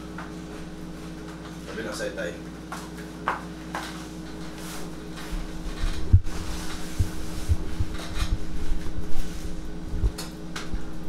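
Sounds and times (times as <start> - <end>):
steady low hum: 0.0 - 11.0
dull low thumps: 5.4 - 9.2, 9.8 - 11.0.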